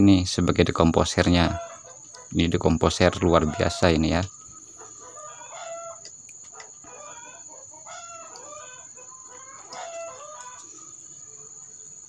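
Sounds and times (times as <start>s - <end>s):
chickens calling: 0.0s - 12.0s
rooster crowing: 1.3s - 2.3s, 3.2s - 11.8s.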